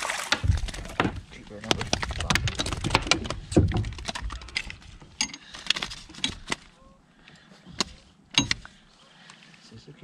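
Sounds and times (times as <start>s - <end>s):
fishing tackle clicks and rattles: 0.4s - 6.8s.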